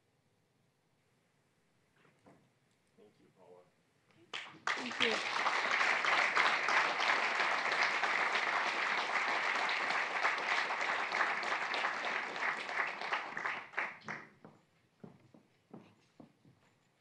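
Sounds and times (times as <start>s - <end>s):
audience applauding: 4.3s - 14.4s.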